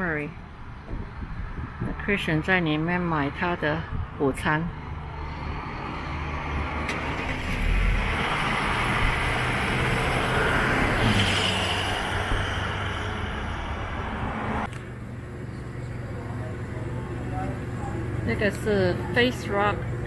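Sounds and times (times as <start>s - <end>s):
vehicle passing by: 4.7s - 14.7s.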